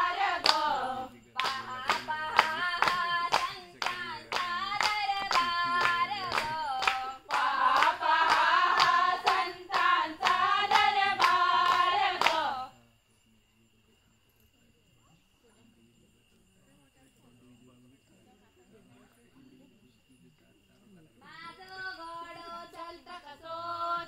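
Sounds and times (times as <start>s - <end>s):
hands clapping on a beat: 0.0s - 12.6s
women singing together: 0.0s - 12.7s, 21.3s - 24.0s.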